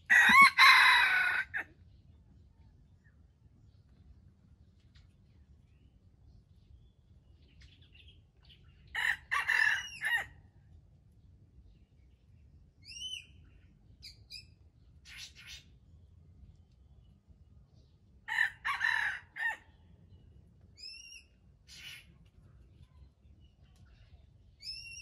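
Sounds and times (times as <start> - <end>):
rooster crowing: 0.1 - 1.7, 9.0 - 10.3, 18.3 - 19.6.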